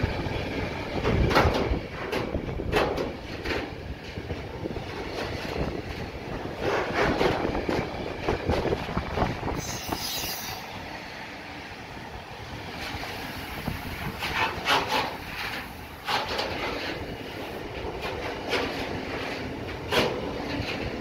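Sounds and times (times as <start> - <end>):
freight train rumbling past: 0.0 - 21.0
wheels clacking over rail joints: 0.0 - 21.0
high squeal: 9.6 - 10.7.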